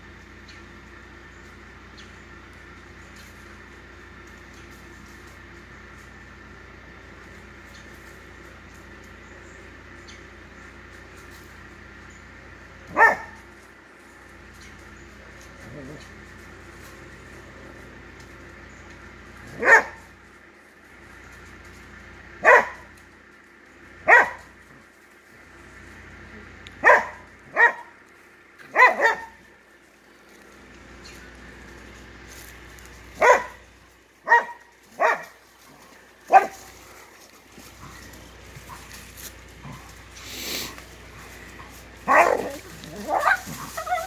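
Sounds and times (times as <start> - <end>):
dog barking: 12.9 - 13.5, 19.5 - 20.1, 22.4 - 22.9, 24.0 - 24.5, 26.8 - 28.0, 28.6 - 29.4, 33.2 - 33.6, 34.2 - 35.4, 36.3 - 36.7, 42.0 - 44.0.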